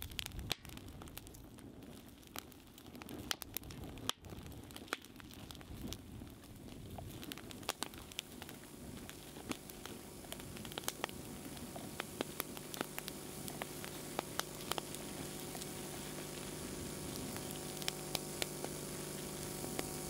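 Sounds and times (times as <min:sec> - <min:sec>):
fire crackling and popping: 0:00.0 - 0:20.0
steady low hum: 0:05.4 - 0:20.0.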